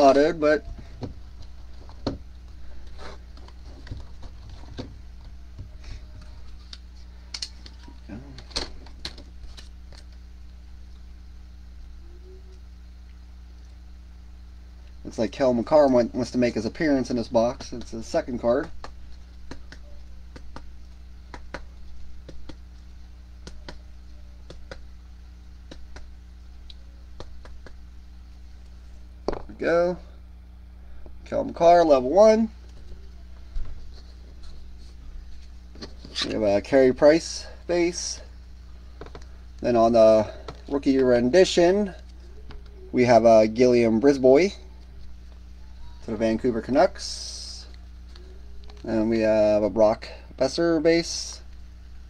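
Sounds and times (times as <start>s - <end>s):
faint low hum: 0.0s - 52.0s
trading cards tapping and rustling: 17.5s - 22.8s, 23.4s - 23.8s, 24.4s - 24.9s, 25.6s - 26.1s, 27.2s - 27.8s.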